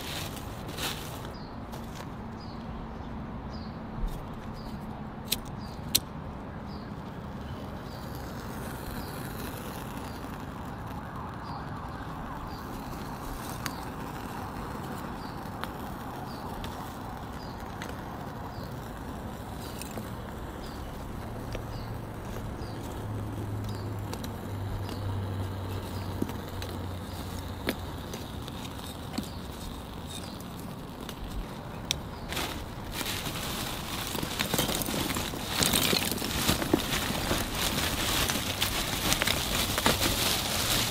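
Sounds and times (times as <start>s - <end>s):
charcoal lumps clacking together: 22.3s - 40.9s.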